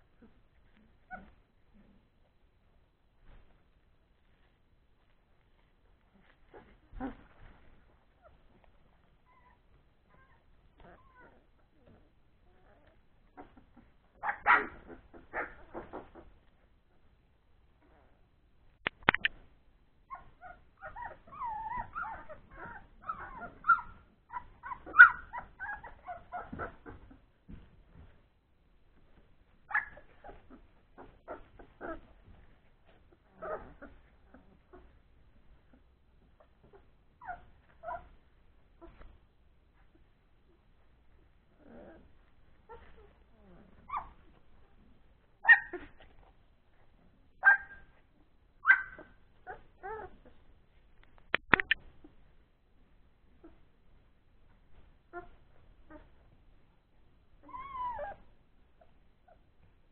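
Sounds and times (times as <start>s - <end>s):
puppies whimpering and squealing: 6.2s - 16.5s, 20.1s - 27.4s, 29.7s - 38.2s, 41.1s - 44.5s, 48.6s - 50.4s, 57.4s - 59.6s.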